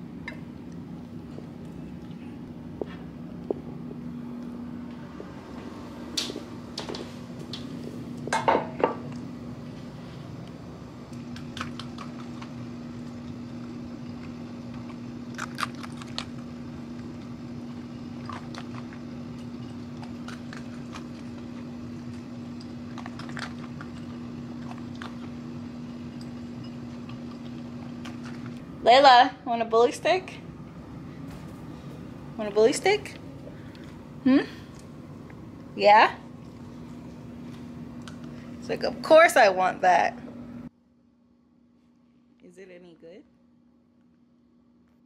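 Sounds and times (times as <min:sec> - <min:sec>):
steady low hum: 0:00.0 - 0:45.0
dog crunching kibble: 0:11.3 - 0:17.3, 0:18.0 - 0:25.5, 0:26.9 - 0:28.6
bowl clinking: 0:25.8 - 0:27.6.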